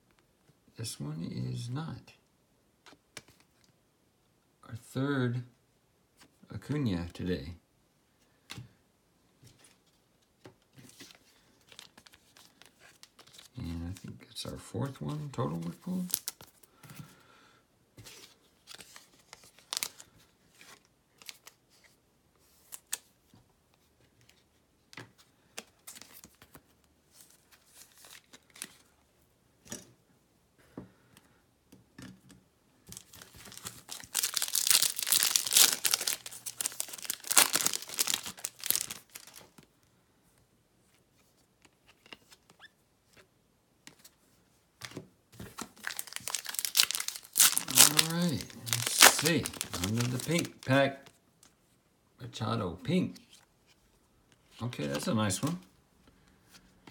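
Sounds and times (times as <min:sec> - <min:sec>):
card pack wrapper crinkling: 0:11.0 - 0:14.0, 0:15.6 - 0:16.6, 0:18.2 - 0:21.6, 0:32.9 - 0:39.6, 0:45.5 - 0:51.1.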